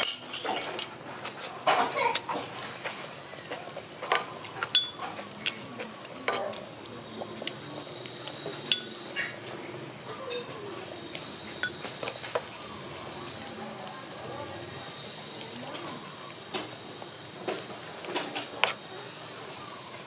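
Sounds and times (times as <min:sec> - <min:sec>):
metal spoon clinking on pot: 0:04.1 - 0:05.2, 0:08.5 - 0:09.3, 0:11.6 - 0:12.4.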